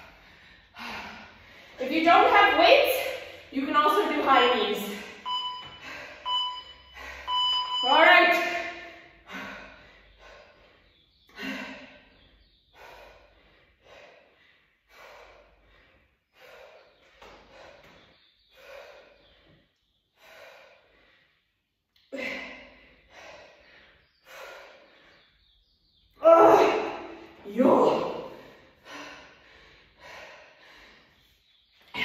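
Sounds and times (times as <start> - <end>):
person breathing hard: 0.0 - 1.8, 9.0 - 25.6, 28.2 - 31.3.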